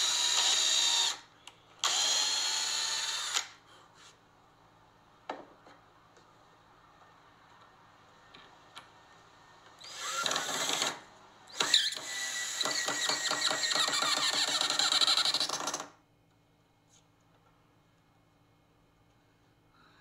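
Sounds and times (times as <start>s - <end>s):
power drill driving a screw: 0.0s - 1.2s, 1.8s - 3.6s, 9.8s - 15.8s.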